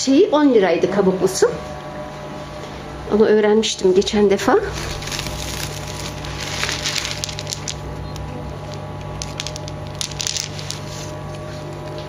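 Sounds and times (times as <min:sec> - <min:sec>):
steady low hum: 0:00.0 - 0:12.0
plastic bag crinkling: 0:04.7 - 0:12.0.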